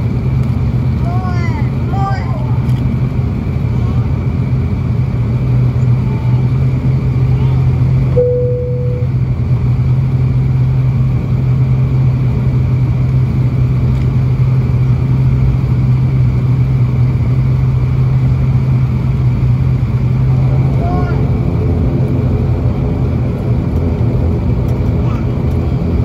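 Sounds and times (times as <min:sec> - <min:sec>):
turboprop cabin drone: 0:00.0 - 0:26.0
brief single tone: 0:08.2 - 0:09.2.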